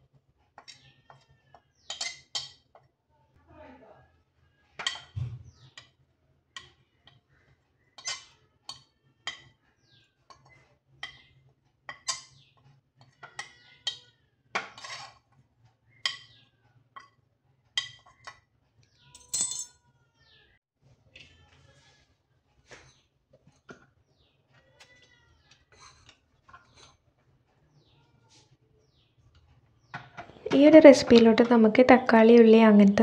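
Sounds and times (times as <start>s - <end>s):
spoon scraping powder: 14.7s - 15.3s, 25.3s - 27.0s
metal spoon clinking on steel jar: 19.2s - 19.7s.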